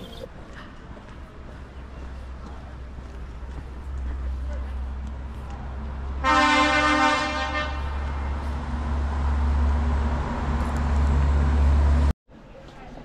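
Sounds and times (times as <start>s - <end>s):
vehicle horn blast: 6.2s - 8.0s.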